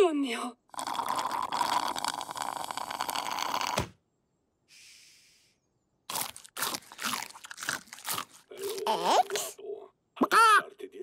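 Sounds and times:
drink slurped through a straw: 0.7 - 3.8
loud crunching of popcorn: 6.1 - 9.4.

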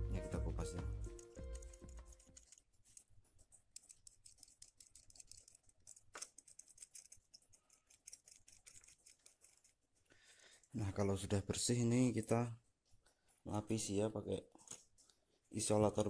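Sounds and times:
knife blade scraping wire: 1.2 - 9.8.

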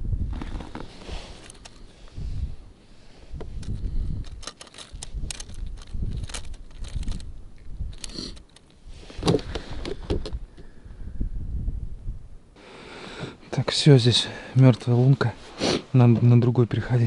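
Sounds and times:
low rumble: 1.8 - 12.6
gear clicking and rattling: 3.4 - 8.8.

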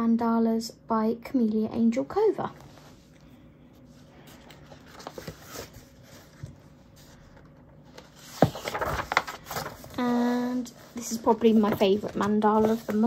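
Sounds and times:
paper pages rustling: 2.5 - 13.0.

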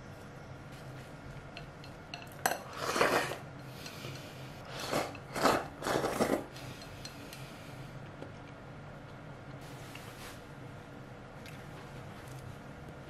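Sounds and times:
person slurping noodles: 2.6 - 3.4, 4.6 - 6.6.

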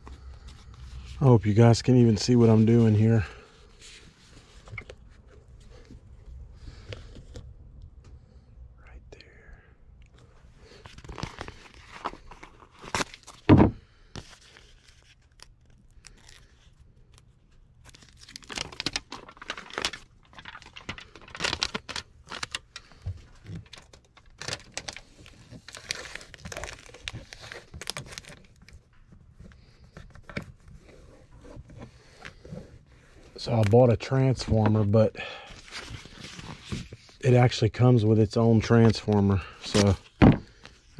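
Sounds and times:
foil tape crinkling: 14.3 - 28.8.

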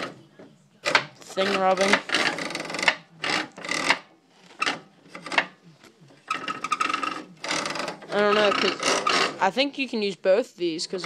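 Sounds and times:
metal parts scraping: 0.9 - 5.6, 6.2 - 9.5.

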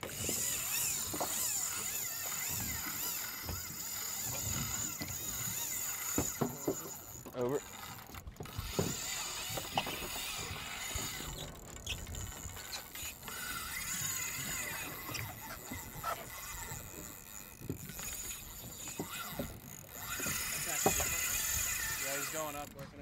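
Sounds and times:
sea noise: 0.0 - 23.0
wind: 0.0 - 23.0.

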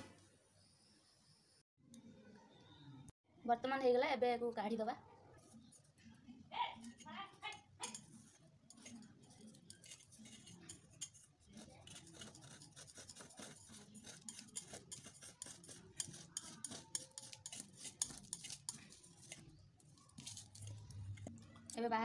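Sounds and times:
knife scraping a steel bowl: 7.8 - 21.3.

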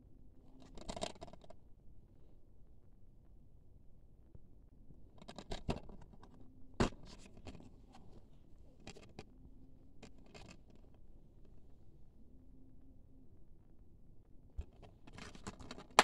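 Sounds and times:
plastic case clicking and scraping: 0.6 - 1.5, 14.6 - 16.0.

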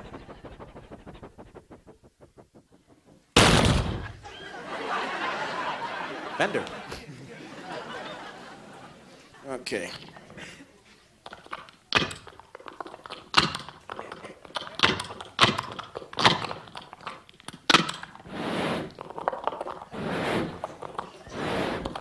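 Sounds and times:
mouth-made rushing noises: 0.0 - 4.4, 19.9 - 22.0.

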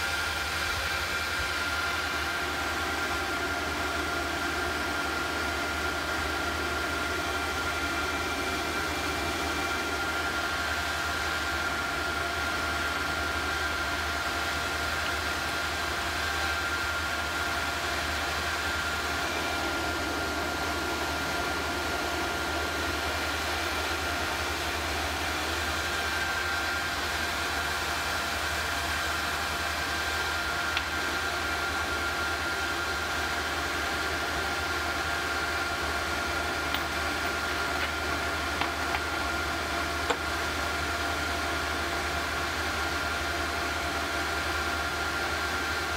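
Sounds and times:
induction heater hum and hiss: 0.0 - 45.9.

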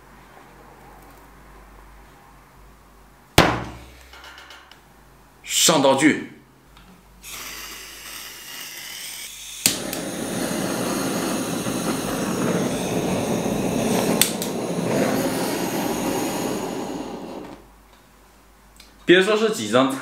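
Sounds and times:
blowtorch flame roaring: 7.2 - 17.8
faint gas hiss: 7.2 - 19.6
blowtorch click: 7.3 - 17.6.

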